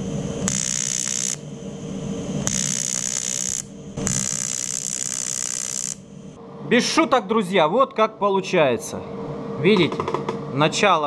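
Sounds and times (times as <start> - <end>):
welding arc buzzing and hissing: 0.0 - 6.2.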